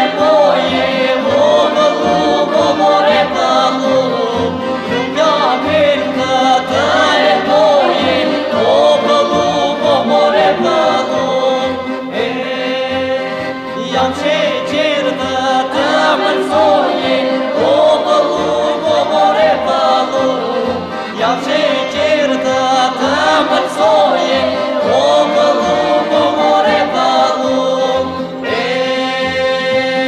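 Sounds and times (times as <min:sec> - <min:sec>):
group singing folk song: 0:00.0 - 0:30.0
instrumental accompaniment: 0:00.0 - 0:30.0.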